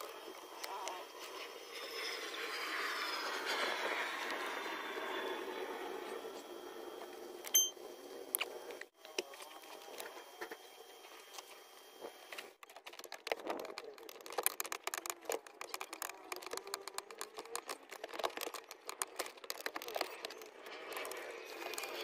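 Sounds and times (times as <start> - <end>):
plastic parts clicking and rattling: 12.6 - 22.0.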